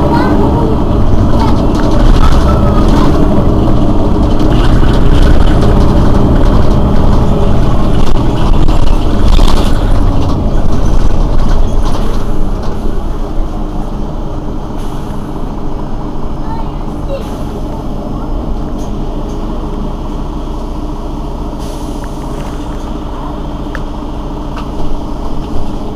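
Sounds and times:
bus engine idling: 0.0 - 25.9.

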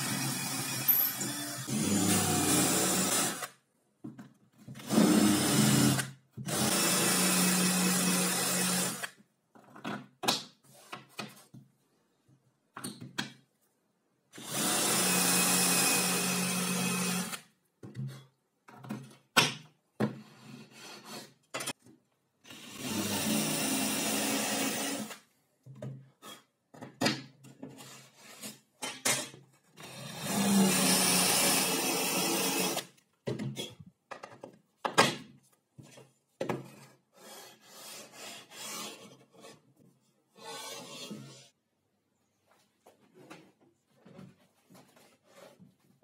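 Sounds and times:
cordless drill boring into board: 0.0 - 3.5, 4.8 - 9.1, 14.4 - 17.4, 22.5 - 25.2, 29.8 - 32.8
clicks and handling knocks: 33.2 - 36.8.

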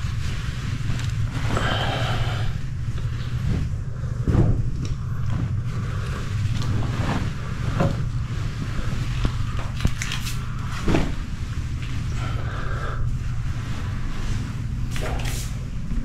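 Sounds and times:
clothes and towels rustling: 0.0 - 16.0
steady low hum: 0.0 - 16.0.

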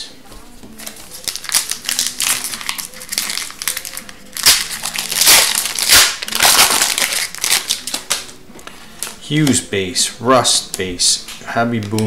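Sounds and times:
foil wrapper crinkling and tearing: 0.8 - 8.4.

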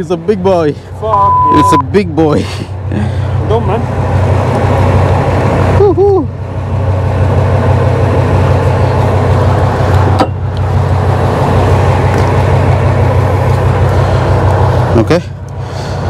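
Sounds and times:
boat engine humming: 0.0 - 16.0
wind: 0.0 - 16.0.

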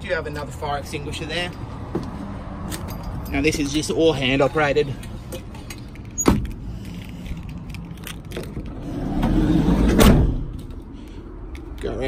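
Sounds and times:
van sliding door rumbling: 8.3 - 10.7
sliding door shutting thud: 8.7 - 10.5.

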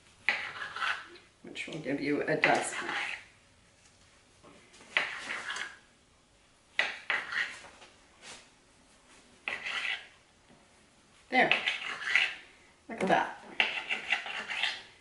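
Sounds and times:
knife scraping: 0.2 - 1.2, 2.4 - 3.3, 4.9 - 5.8, 6.8 - 7.7, 9.4 - 10.2, 11.5 - 12.4, 13.5 - 14.9.

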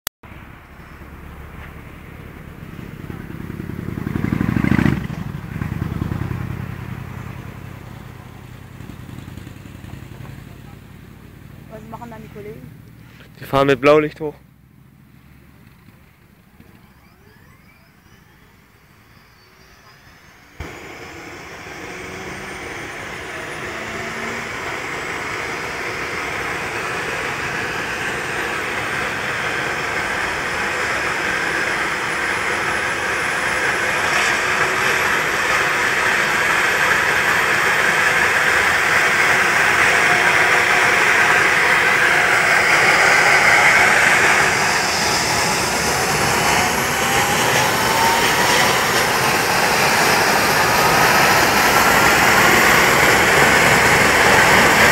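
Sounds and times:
helicopter turbine whine: 0.3 - 54.9
second rising tone: 16.2 - 54.9.

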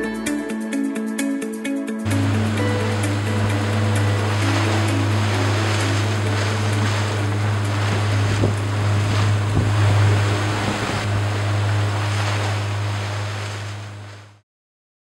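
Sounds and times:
boat motor humming: 2.1 - 14.4
water rushing past hull: 2.1 - 14.4
water splashes: 2.1 - 14.4.

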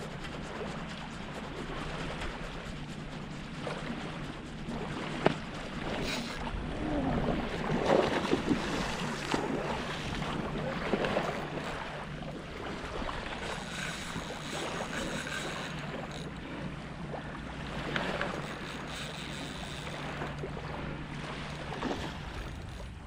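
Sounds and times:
small waves lapping: 0.0 - 23.0
wind on microphone: 0.0 - 23.0.

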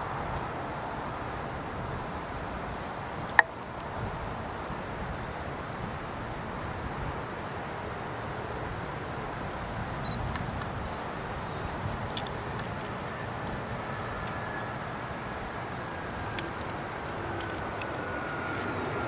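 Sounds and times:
insect chirps: 0.0 - 19.0
distant jet landing: 9.0 - 19.0.

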